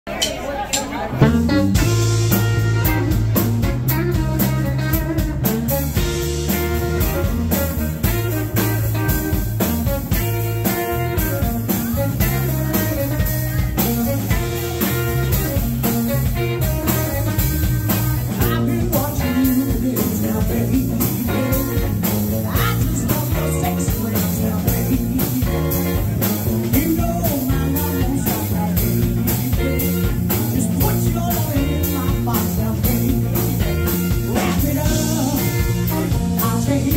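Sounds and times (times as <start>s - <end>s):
drum kit beat: 0.1s - 36.9s
electric guitar: 0.9s - 36.9s
electric bass: 1.1s - 36.9s
woman singing: 18.3s - 36.9s.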